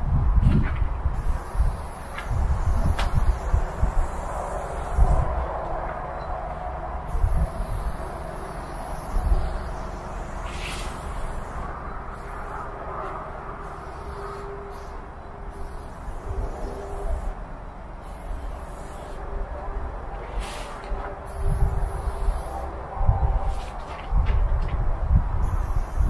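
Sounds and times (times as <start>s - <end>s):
spray can hissing: 1.2s - 5.3s, 7.1s - 12.7s, 13.6s - 17.4s, 18.0s - 19.2s, 20.3s - 22.7s, 25.4s - 26.0s.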